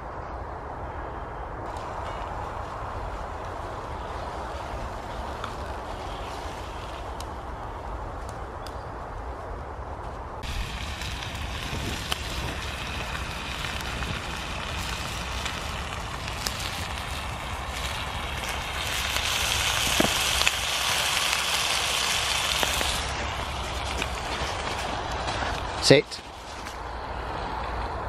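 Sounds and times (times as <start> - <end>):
twig fire crackling: 0.0 - 28.0
pan hissing and sizzling: 10.4 - 26.8.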